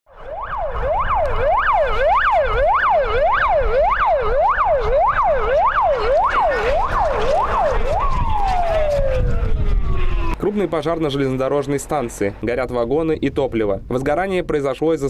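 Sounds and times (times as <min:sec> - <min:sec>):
siren yelping: 0:00.1 - 0:11.7.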